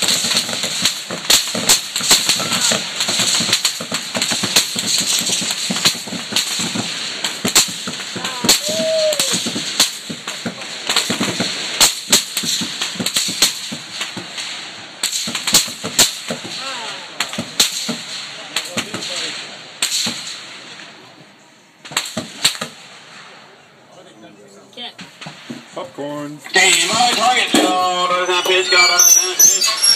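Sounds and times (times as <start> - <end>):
rifle rounds cracking overhead: 0.0 - 21.0, 21.8 - 23.4.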